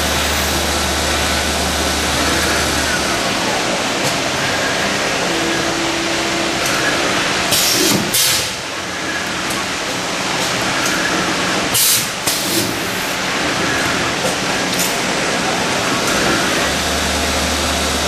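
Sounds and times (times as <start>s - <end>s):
milling machine running: 0.0s - 11.8s.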